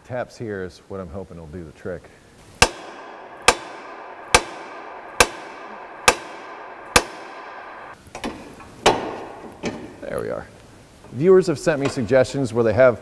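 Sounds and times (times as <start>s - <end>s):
hammer striking metal: 2.6s - 8.0s.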